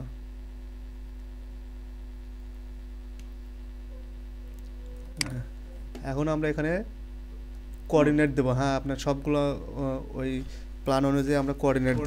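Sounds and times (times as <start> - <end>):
electrical mains hum: 0.0 - 12.0
sharp click: 4.6 - 5.4.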